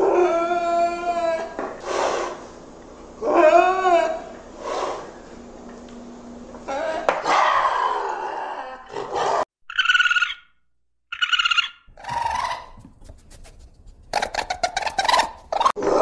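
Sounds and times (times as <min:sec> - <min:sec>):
raccoon high-pitched cries: 0:09.7 - 0:10.4, 0:11.1 - 0:13.2, 0:14.1 - 0:15.8
raccoon clicking chatter: 0:11.1 - 0:15.8
animal scuffle: 0:12.0 - 0:15.7.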